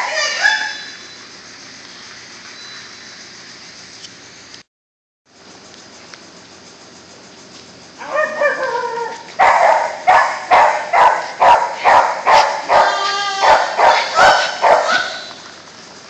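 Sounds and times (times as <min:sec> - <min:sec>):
dog whining: 0:08.0 - 0:09.3, 0:11.5 - 0:15.5
dog barking: 0:09.4 - 0:15.4.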